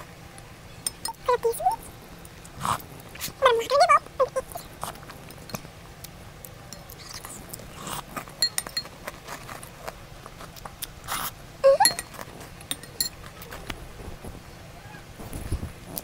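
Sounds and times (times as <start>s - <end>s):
spoon clinking in glass bowl: 0.8s - 1.2s, 8.4s - 8.9s, 11.7s - 13.2s
chewing: 4.4s - 13.7s.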